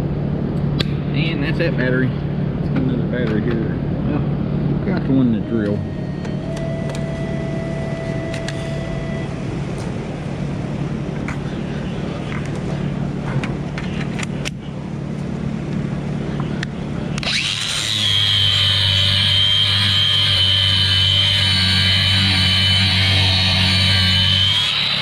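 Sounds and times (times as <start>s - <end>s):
steady low hum: 0.0s - 25.0s
angle grinder whining on steel: 17.2s - 25.0s.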